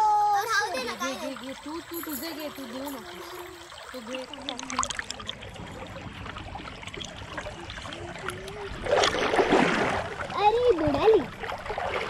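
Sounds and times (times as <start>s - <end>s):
stream trickling over stones: 0.0s - 12.0s
loud splashing rush of water: 3.2s - 12.0s.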